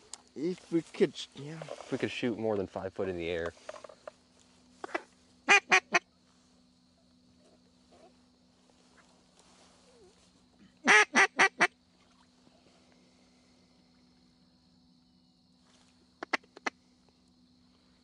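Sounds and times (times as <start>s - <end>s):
duck quacking: 4.8s - 6.0s, 10.8s - 11.7s.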